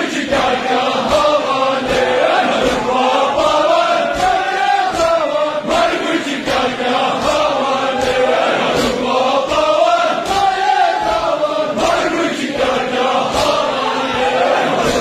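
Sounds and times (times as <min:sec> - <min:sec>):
crowd of men chanting: 0:00.0 - 0:15.0
chest striking beats: 0:07.2 - 0:11.3.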